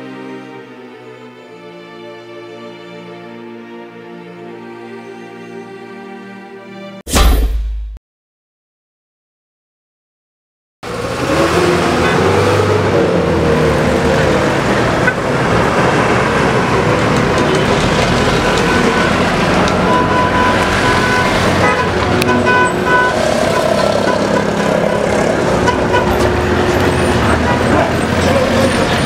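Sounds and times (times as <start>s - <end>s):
motor vehicles running: 10.8s - 29.0s
short car horn toots: 19.8s - 24.6s.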